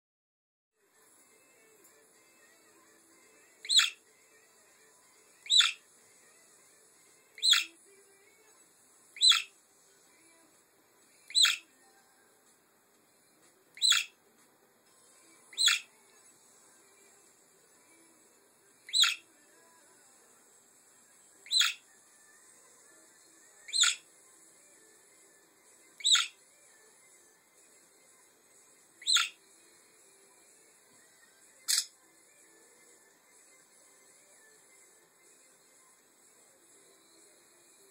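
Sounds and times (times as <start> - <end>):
budgerigar chirps: 3.6 - 4.0, 5.4 - 5.8, 7.4 - 7.7, 9.2 - 9.5, 11.3 - 11.7, 13.8 - 14.2, 15.5 - 15.9, 18.9 - 19.2, 21.5 - 21.8, 23.7 - 24.0, 26.0 - 26.4, 29.0 - 29.4, 31.7 - 31.9.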